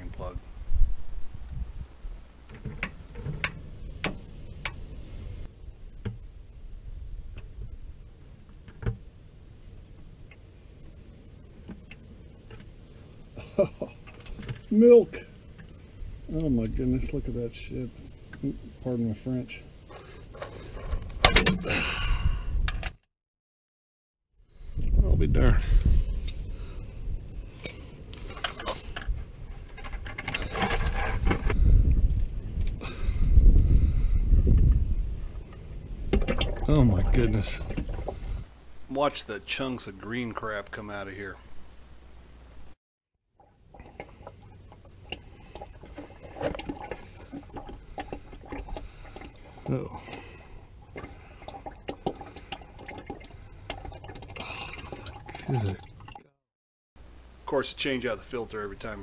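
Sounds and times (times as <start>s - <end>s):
plastic bucket scraping: 28.4s - 31.6s, 43.7s - 55.8s
drips and plops: 36.1s - 38.3s, 43.4s - 56.3s.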